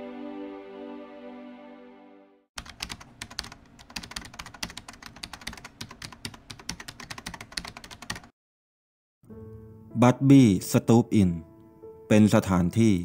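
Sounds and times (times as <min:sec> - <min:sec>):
rapid keyboard typing: 0:02.6 - 0:08.3.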